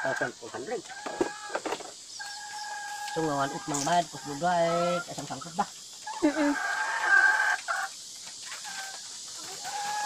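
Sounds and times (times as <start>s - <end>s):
hens clucking: 0.0s - 10.0s
long drawn-out hen call: 8.6s - 10.0s.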